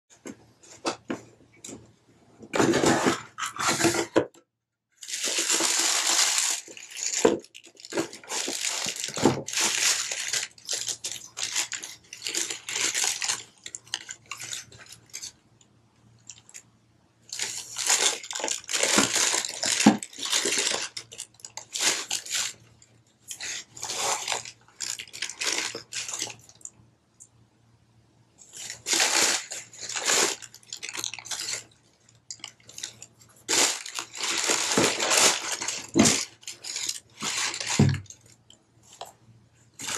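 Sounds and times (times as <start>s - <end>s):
tissue paper rustling: 5.0s - 14.8s, 17.3s - 22.6s, 23.4s - 26.4s, 28.5s - 31.7s, 32.5s - 38.0s.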